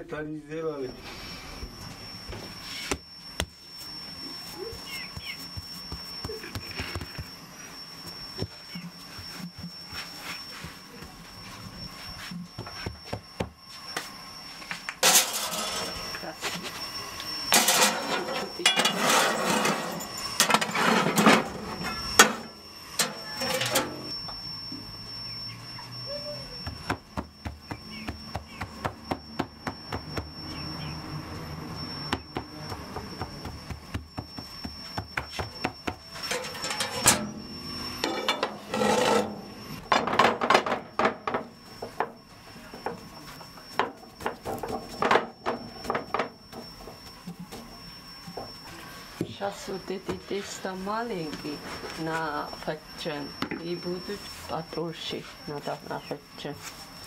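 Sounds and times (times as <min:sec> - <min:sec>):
fingers patting dough: 0:04.7 - 0:07.3, 0:26.6 - 0:30.4, 0:32.1 - 0:36.0
frying pan scraping on grate: 0:15.0 - 0:16.0, 0:17.6 - 0:24.0, 0:36.2 - 0:37.3, 0:38.0 - 0:39.6.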